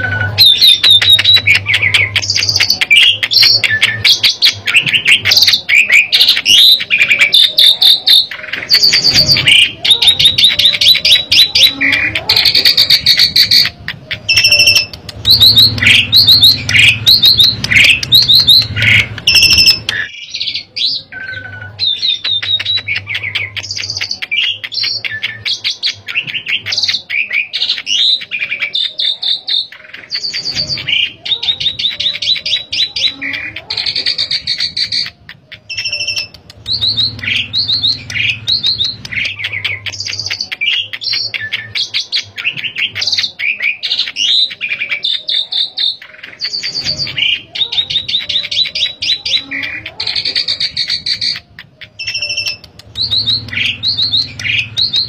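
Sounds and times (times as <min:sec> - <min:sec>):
starling singing: 0:00.0 - 0:55.0.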